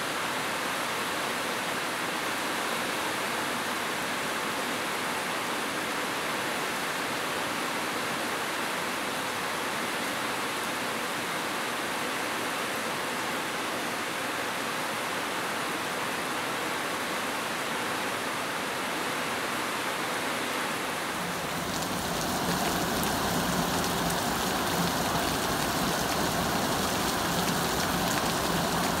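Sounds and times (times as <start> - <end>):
heavy rain falling: 21.0 - 29.0.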